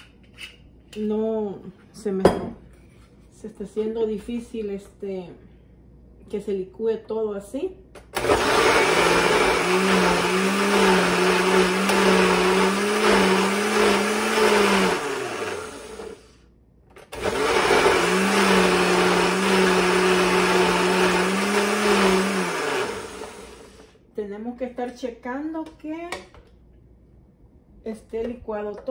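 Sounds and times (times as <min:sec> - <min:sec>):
blender motor humming: 0:08.2 - 0:16.3, 0:17.0 - 0:23.9.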